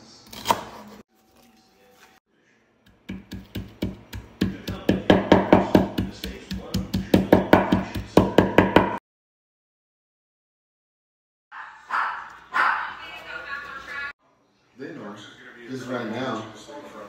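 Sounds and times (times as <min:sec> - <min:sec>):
pestle pounding on wooden board: 0:02.9 - 0:09.0.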